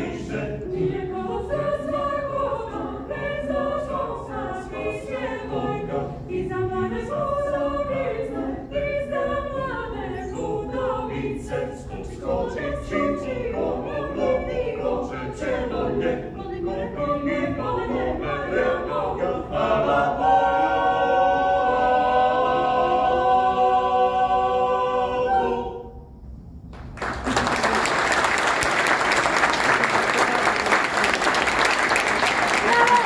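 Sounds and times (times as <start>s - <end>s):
choir singing a cappella: 0.0s - 26.4s
audience applause: 26.8s - 33.0s.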